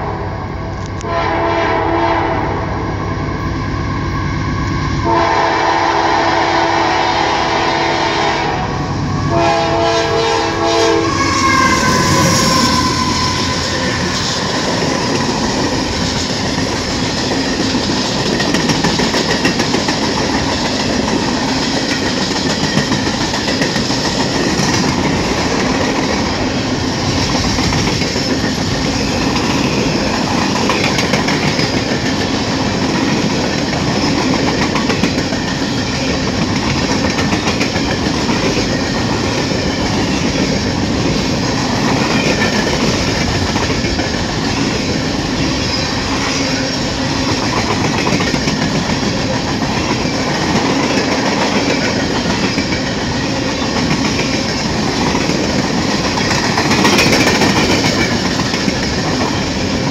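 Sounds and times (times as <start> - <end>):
freight train wheels rumbling: 0.0 - 59.9
wheels clicking over rail joints: 13.8 - 26.2, 47.2 - 59.9.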